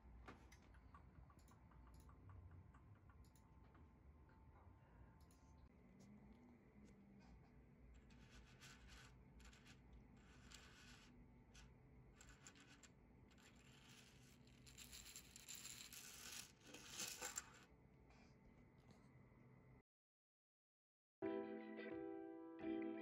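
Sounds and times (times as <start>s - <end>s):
plastic toy segments rattling: 13.5s - 17.6s.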